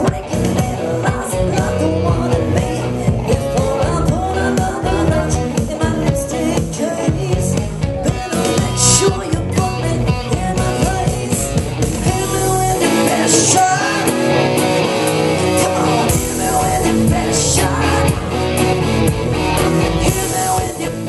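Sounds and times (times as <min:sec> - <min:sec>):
rock song with singing and guitar: 0:00.0 - 0:21.0.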